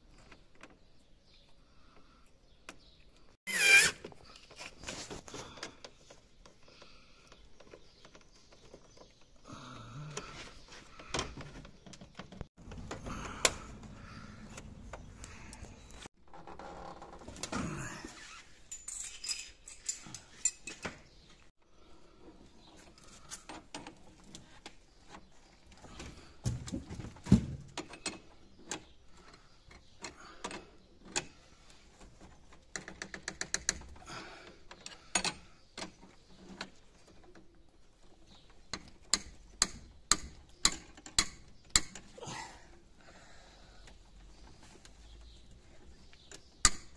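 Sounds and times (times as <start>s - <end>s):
metal wrenches clinking: 18.6s - 20.8s.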